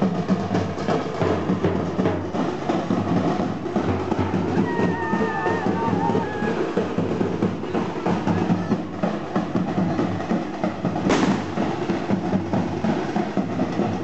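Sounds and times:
procession drums: 0.0s - 14.0s
sharp crack: 11.1s - 11.6s.

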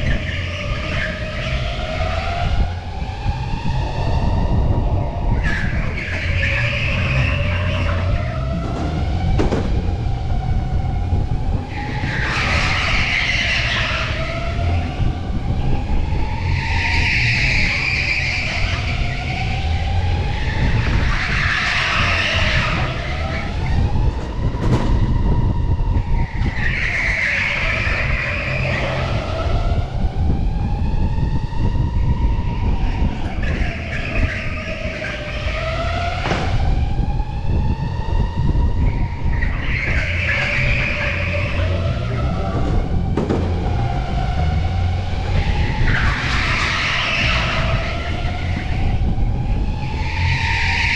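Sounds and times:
constant low rumble: 0.0s - 50.9s
electric go-kart motor whine: 0.0s - 50.9s
tyres squealing: 5.0s - 9.1s, 11.7s - 23.9s, 32.6s - 36.5s, 38.9s - 50.9s.

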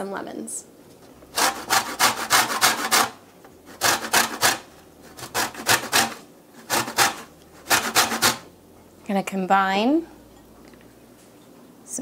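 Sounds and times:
lemon rasping on a grater: 1.3s - 8.4s.

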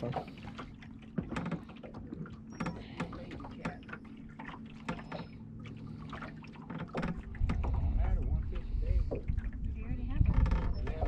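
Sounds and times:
small knocks and splashes: 0.0s - 8.0s
steady low hum: 0.0s - 11.0s
water lapping against boat hull: 0.0s - 11.0s.

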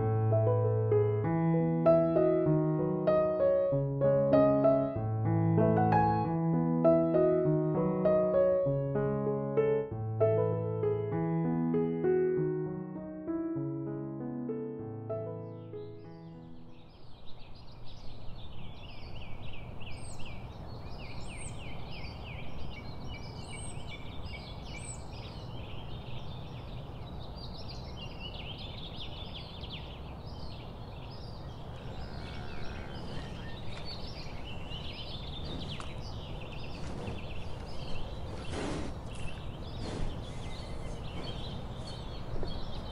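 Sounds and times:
small birds chirping: 15.2s - 42.9s.

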